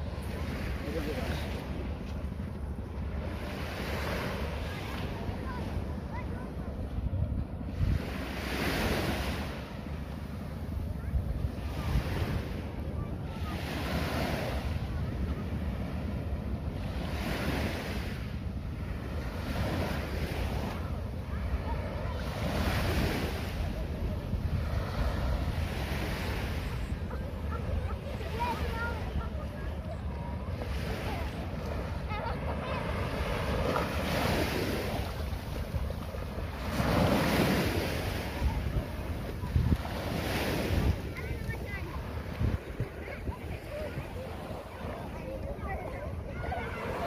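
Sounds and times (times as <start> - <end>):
small waves washing onto sand: 0.0 - 47.0
wind buffeting microphone: 10.5 - 47.0.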